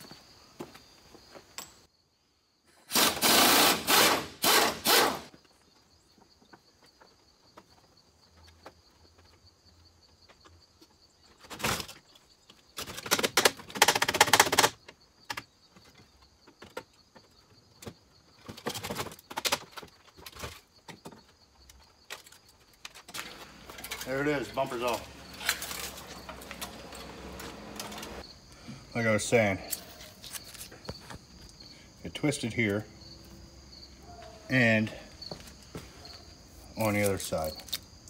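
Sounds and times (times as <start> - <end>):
pneumatic impact wrench rattling: 2.8 - 5.3.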